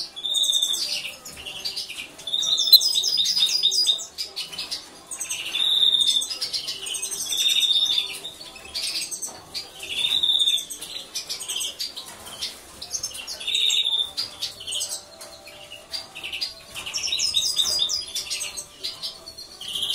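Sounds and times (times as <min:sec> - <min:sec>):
goldfinches calling and twittering: 0:02.4 - 0:04.0.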